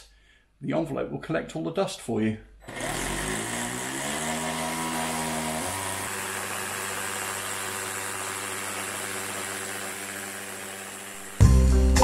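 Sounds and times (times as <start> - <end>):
cordless drill boring into wall: 2.6 - 11.4.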